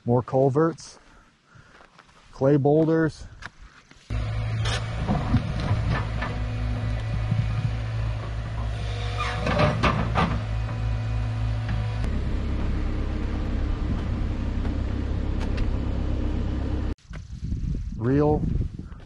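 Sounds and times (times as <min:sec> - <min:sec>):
diesel engine running: 0:04.1 - 0:17.0.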